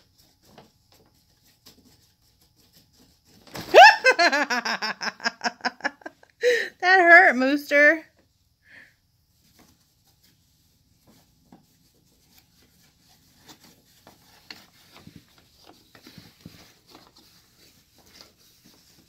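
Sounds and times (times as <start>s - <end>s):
scratching on paper bag: 9.4s - 19.0s.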